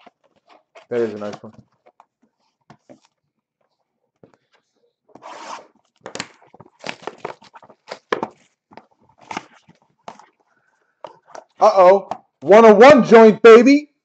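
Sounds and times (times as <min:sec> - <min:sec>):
cellophane tearing and crinkling: 0:05.3 - 0:08.5.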